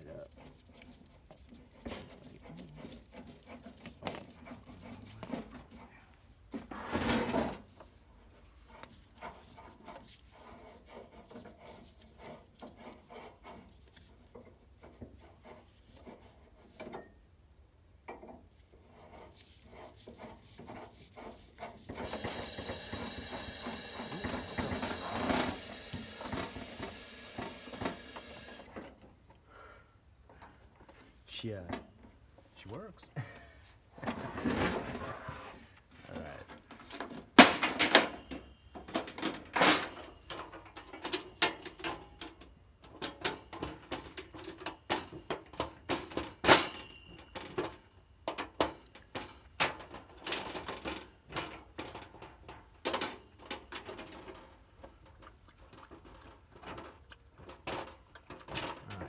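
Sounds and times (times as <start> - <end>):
grill rubbing and scraping: 18.8 - 28.6.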